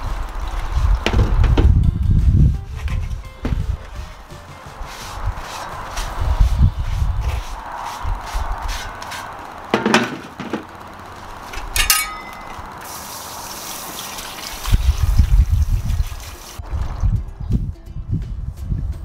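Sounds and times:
garden hose water running: 0.0 - 1.8, 2.6 - 17.1
metal spade knocks: 11.8 - 12.6
hissing spray: 12.7 - 16.6.

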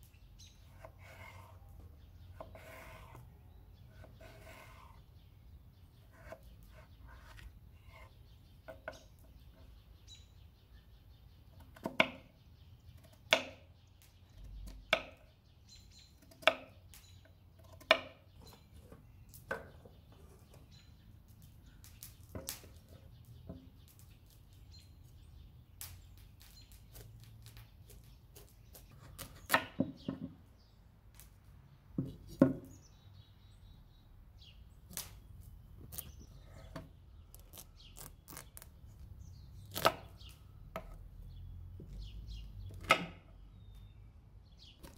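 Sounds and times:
knife cutting potato: 3.9 - 5.0.

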